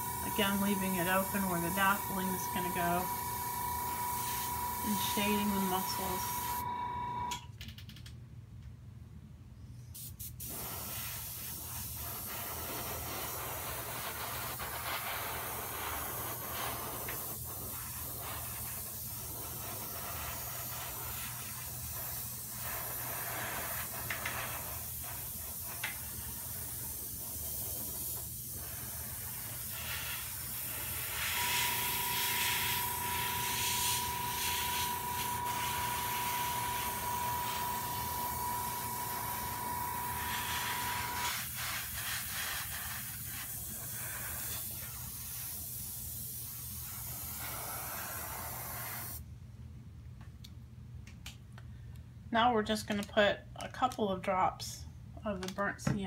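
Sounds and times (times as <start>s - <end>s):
airbrush hissing: 0.0s - 7.2s, 10.0s - 49.2s
steady high whine: 0.0s - 7.5s, 30.8s - 41.3s.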